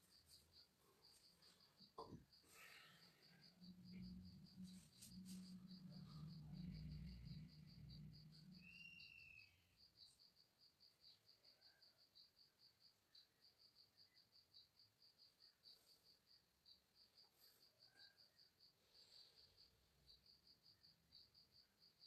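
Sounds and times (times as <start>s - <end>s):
insect chirping: 0.0s - 22.0s
low hum: 3.3s - 8.6s.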